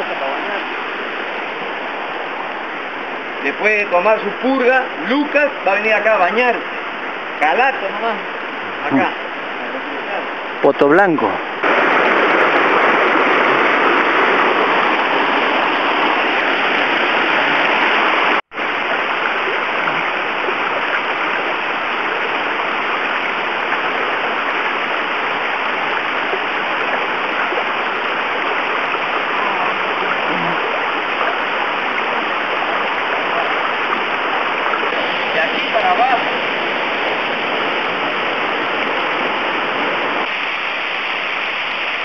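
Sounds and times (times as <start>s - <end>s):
stream rushing water: 0.0s - 42.0s
waterfall pouring: 11.6s - 42.0s.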